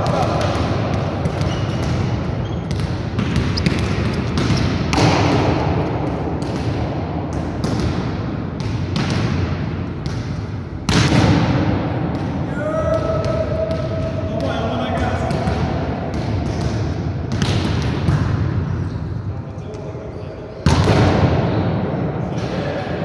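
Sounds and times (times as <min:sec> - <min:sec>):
volleyballs thudding in gym: 0:00.0 - 0:18.8, 0:20.6 - 0:23.0.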